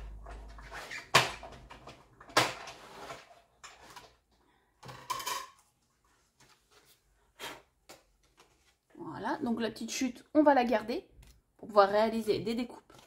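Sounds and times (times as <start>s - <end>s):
tools and plates clacking: 4.8s - 5.7s.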